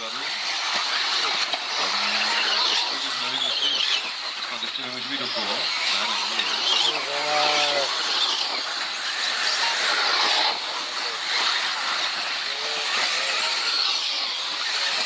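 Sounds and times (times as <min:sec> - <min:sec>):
rc car motors and tyres hissing: 0:00.0 - 0:15.0.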